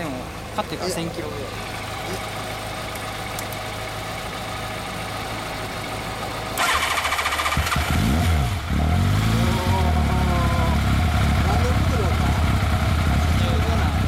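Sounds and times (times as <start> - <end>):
motorcycle engine idling and revving: 0.0 - 14.0.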